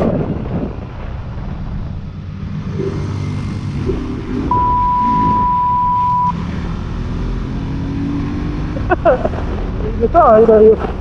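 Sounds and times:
wind noise: 0.0 - 6.3
steady high beep: 4.5 - 6.4.

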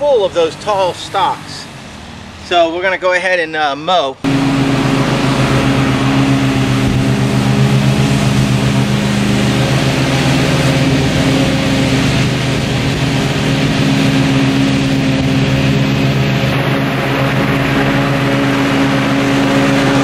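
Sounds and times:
ride-on mower engine running: 4.2 - 20.0
blades cutting tall grass: 4.3 - 20.0.

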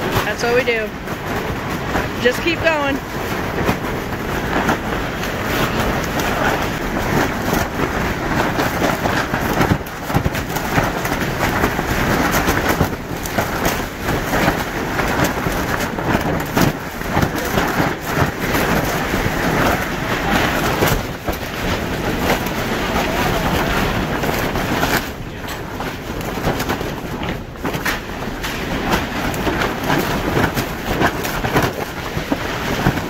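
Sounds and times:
plastic sheeting flapping: 0.0 - 33.0
strong gusting wind: 0.0 - 33.0.

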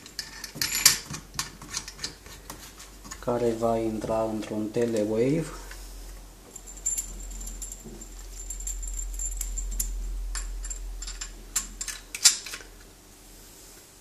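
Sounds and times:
low hum: 5.4 - 13.6.

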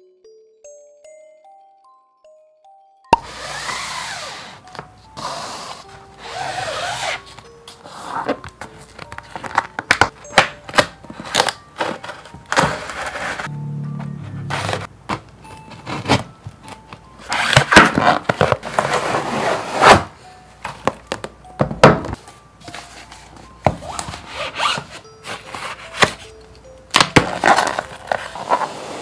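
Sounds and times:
faint soft background music: 0.0 - 29.0
cardboard and plastic rustling: 6.8 - 13.5, 14.5 - 26.4, 27.0 - 29.0.

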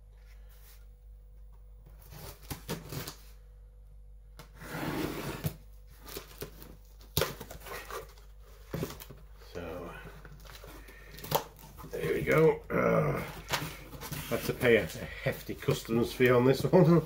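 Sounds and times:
cardboard rubbing and scraping: 4.6 - 6.4, 13.3 - 17.0.

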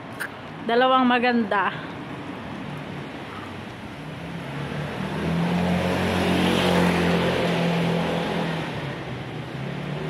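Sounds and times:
motor scooter passing by: 4.4 - 10.0.

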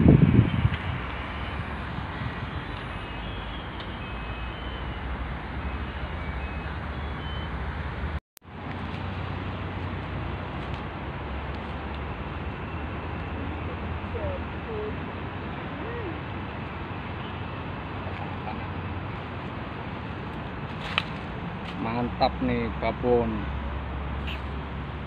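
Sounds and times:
road traffic hum: 0.0 - 25.0.

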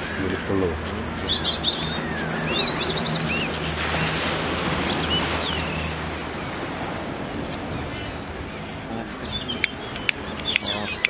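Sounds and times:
high seabird calls: 0.0 - 11.0
surf rushing: 0.0 - 11.0
wind noise: 0.0 - 11.0.

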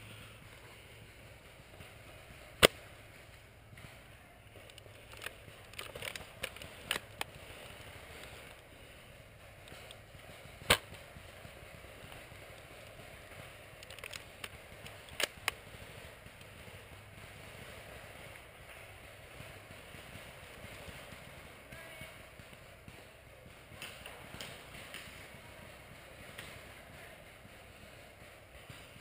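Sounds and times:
airsoft gunshots: 1.8 - 4.0, 5.0 - 29.0.

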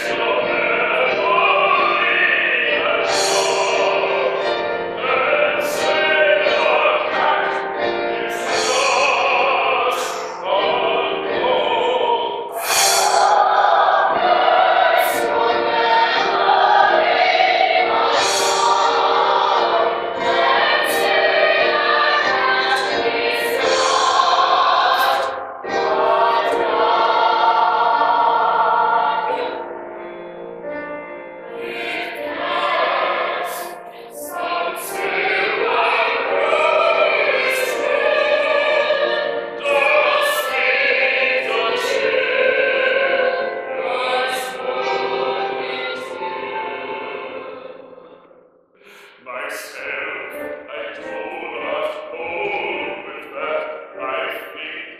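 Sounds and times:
chorus singing with accompaniment: 0.0 - 30.6, 31.4 - 54.9.

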